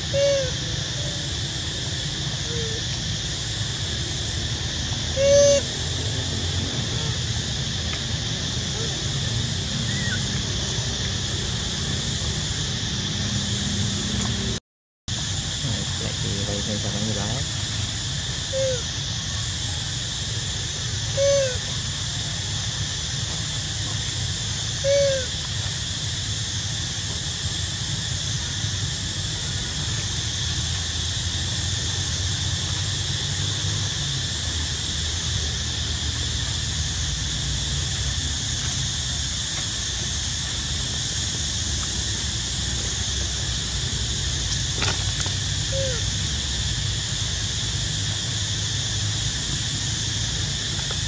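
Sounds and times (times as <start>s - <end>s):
outdoor background hiss: 0.0s - 51.0s
rising and falling calls: 8.7s - 11.0s.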